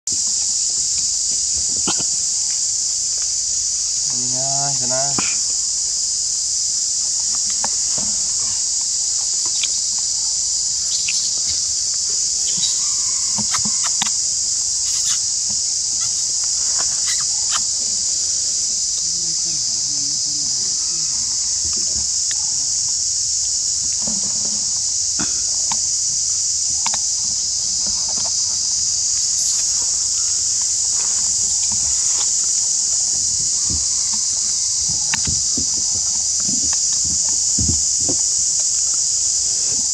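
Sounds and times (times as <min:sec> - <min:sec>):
high-pitched insect drone: 0:00.1 - 0:39.9.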